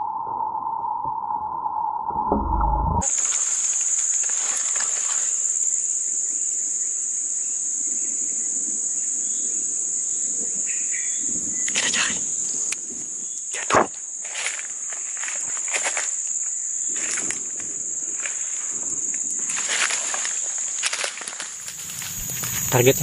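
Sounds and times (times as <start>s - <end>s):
steady mid-pitched tone: 2.0s - 3.1s
rustling through undergrowth: 3.0s - 6.0s, 13.6s - 23.0s
forest insects droning: 3.0s - 23.0s.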